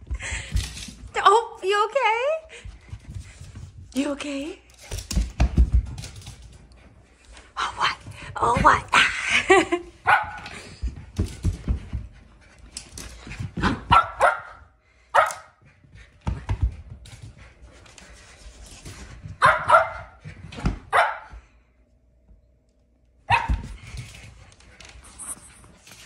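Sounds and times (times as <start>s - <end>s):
paws scrabbling on floor: 0.0s - 14.7s, 15.5s - 21.6s, 23.3s - 26.0s
dog barking: 10.1s - 10.4s, 13.9s - 14.6s, 15.2s - 15.6s, 19.4s - 20.2s, 20.9s - 21.3s, 23.3s - 23.6s.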